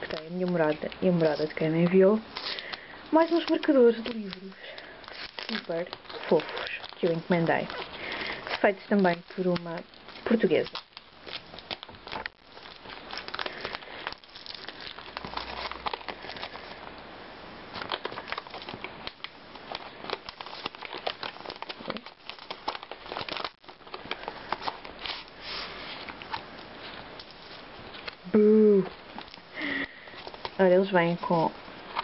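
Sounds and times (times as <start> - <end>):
paper and plastic crinkling: 0.0 - 17.0, 17.7 - 32.0.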